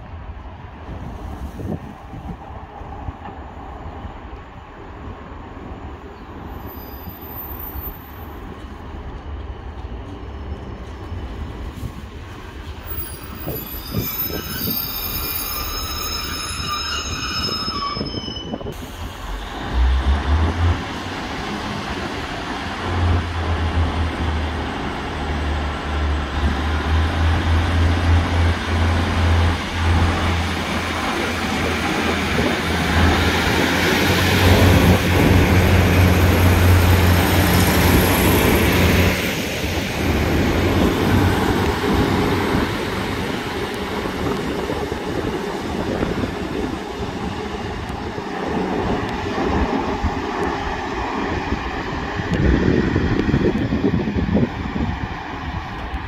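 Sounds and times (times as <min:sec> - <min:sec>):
train wheels squealing: 0:06.5 - 0:08.4, 0:12.6 - 0:19.6.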